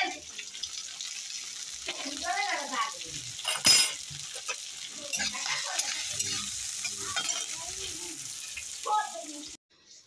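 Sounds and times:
vegetables sizzling in hot oil: 0.0s - 10.0s
spatula scraping metal pan: 3.5s - 8.8s.

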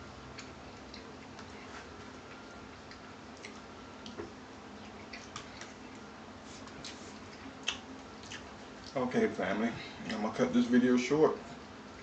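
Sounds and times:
chewing: 0.2s - 9.0s.

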